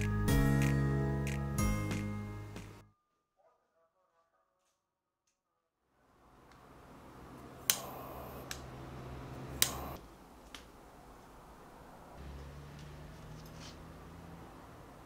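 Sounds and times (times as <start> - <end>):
torch lighter ignition click: 9.6 - 10.0.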